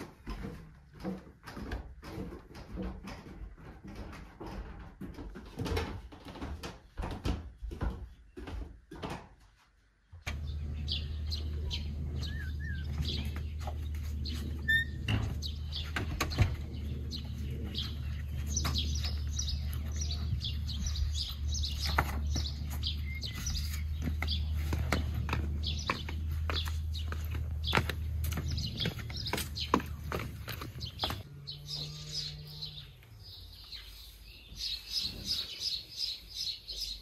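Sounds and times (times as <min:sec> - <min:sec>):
footsteps down wooden stairs: 0:00.0 - 0:31.3
birds chirping: 0:10.0 - 0:37.0
shoes scuffing on brick floor: 0:18.2 - 0:31.2.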